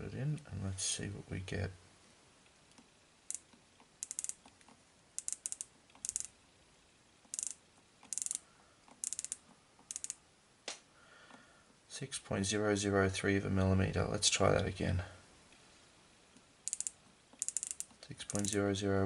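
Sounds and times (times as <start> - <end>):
micrometer ratchet clicking: 3.3 - 6.4, 7.2 - 10.2, 16.6 - 18.6.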